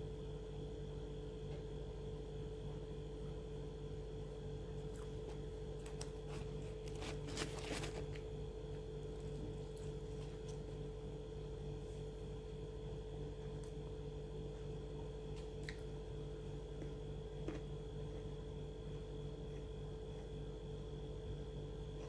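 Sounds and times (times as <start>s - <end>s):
steady electrical hum: 0.0s - 22.0s
fried food crackly rustle: 5.0s - 8.3s.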